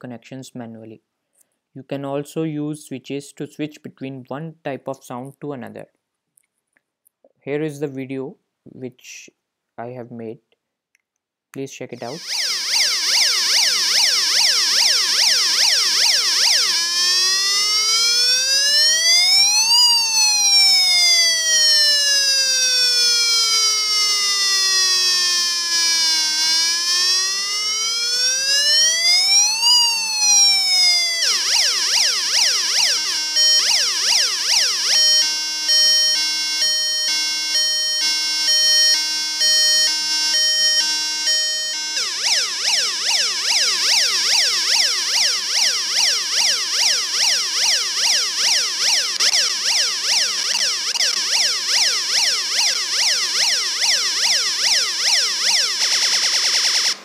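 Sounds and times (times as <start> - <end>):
electronic siren tones: 12.0 - 57.0.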